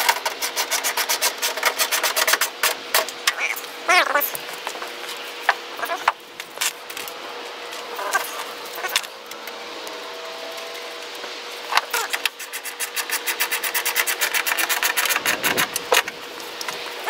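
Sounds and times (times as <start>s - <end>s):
ratchet wrench clicking rapidly: 12.2s - 16.1s.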